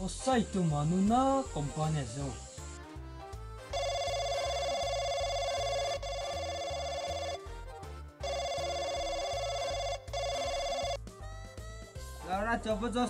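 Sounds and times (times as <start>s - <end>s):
background music with low beat: 0.0s - 13.0s
mobile phone ringing: 3.7s - 11.9s.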